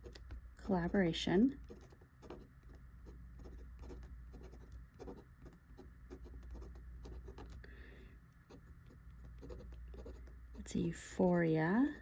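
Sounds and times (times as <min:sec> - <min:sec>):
fountain pen writing on paper: 0:01.6 - 0:07.6, 0:08.5 - 0:10.7.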